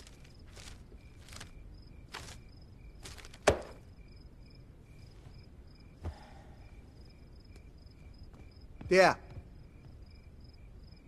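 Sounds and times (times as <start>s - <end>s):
crickets chirping: 0.0s - 11.0s
soft footsteps: 4.9s - 10.9s.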